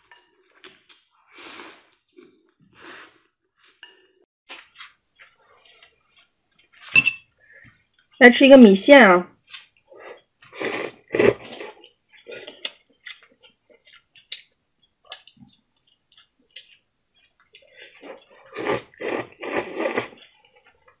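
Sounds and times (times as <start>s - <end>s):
person chewing: 9.4s - 21.0s
slurping noodles: 9.9s - 12.7s, 17.6s - 20.4s.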